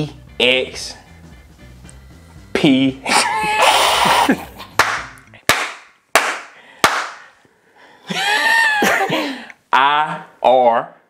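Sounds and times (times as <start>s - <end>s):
man laughing loudly: 3.0s - 4.8s, 8.1s - 9.4s.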